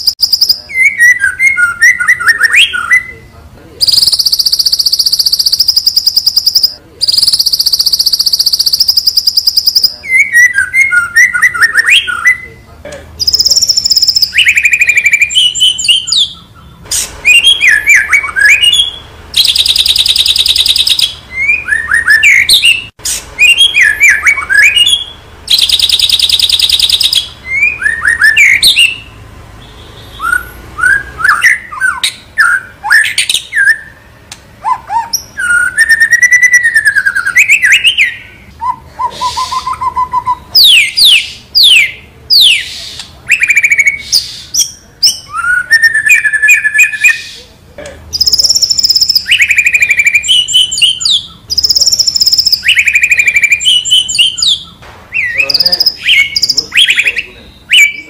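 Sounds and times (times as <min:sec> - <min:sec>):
songbird singing: 0:00.0 - 0:58.0.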